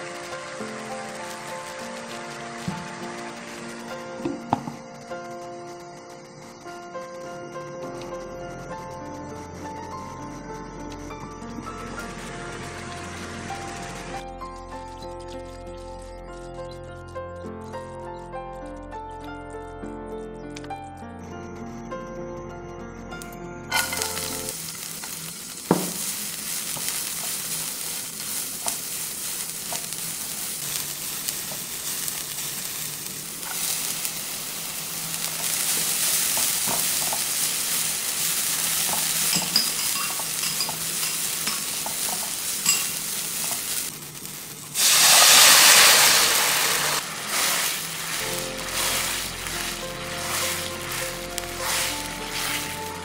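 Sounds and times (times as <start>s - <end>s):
sauce poured into hot pan: 0.0s - 4.9s, 23.7s - 53.0s
food sizzling in hot oil: 0.0s - 16.0s, 23.7s - 53.0s.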